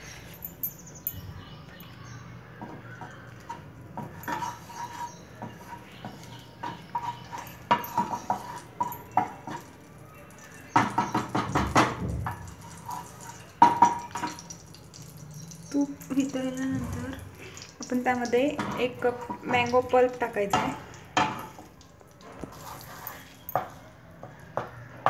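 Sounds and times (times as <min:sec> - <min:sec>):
wooden spatula scraping a pan: 0:03.5 - 0:09.8, 0:12.3 - 0:13.5, 0:22.4 - 0:23.8.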